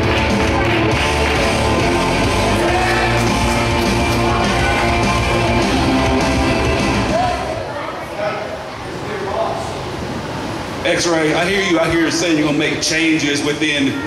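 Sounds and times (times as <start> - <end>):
loud rock music with guitar: 0.0 - 7.2.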